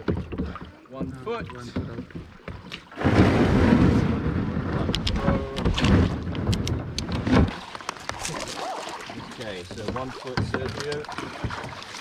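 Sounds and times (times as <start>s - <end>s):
knocks and clicks: 4.8s - 8.2s
camera handling rumble: 4.9s - 7.4s.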